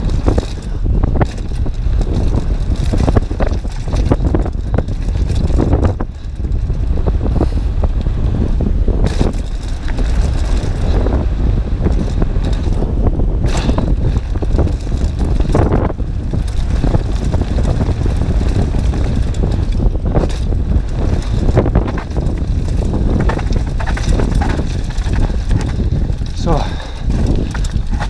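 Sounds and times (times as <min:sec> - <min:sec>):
bike rattling over bumps: 0:00.0 - 0:28.0
wind rumble on microphone: 0:00.0 - 0:28.0
tyres crunching on gravel: 0:11.8 - 0:28.0.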